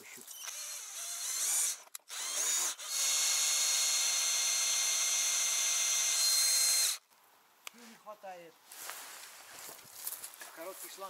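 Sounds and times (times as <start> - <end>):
cordless drill whining: 0.3 - 7.0.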